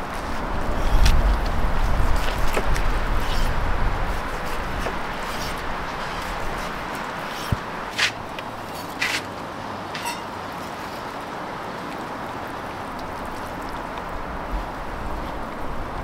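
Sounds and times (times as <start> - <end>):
fire crackles: 10.6 - 16.0.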